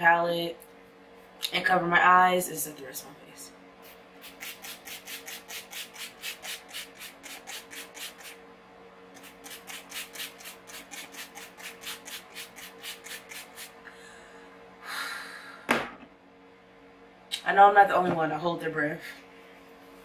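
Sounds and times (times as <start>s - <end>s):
spray bottle spritzing mist: 3.8s - 8.4s, 9.2s - 13.8s.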